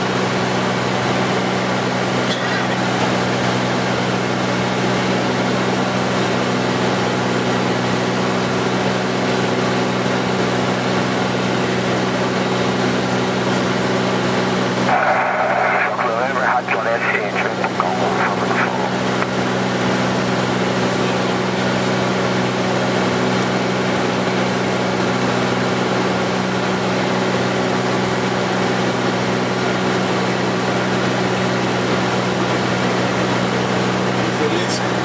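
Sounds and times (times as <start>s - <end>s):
piston engine and propeller droning: 0.0s - 35.0s
cabin and airflow noise: 14.9s - 19.4s.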